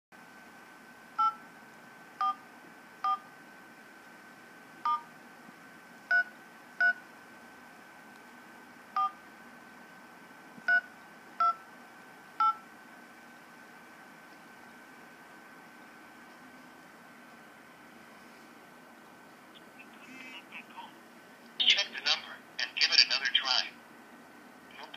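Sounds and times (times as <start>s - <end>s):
touch-tone keypad beeps: 9.0s - 9.2s, 12.4s - 12.6s.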